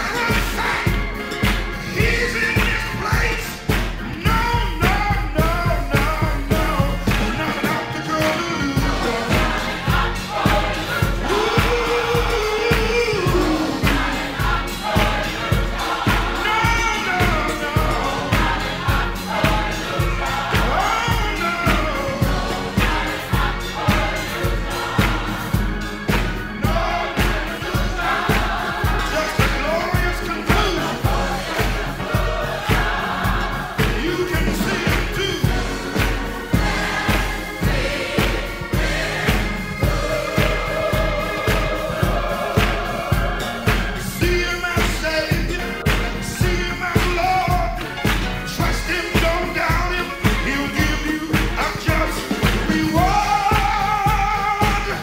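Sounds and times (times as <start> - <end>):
voices singing: 0.0 - 55.0
steady kick drum: 8.8 - 55.0.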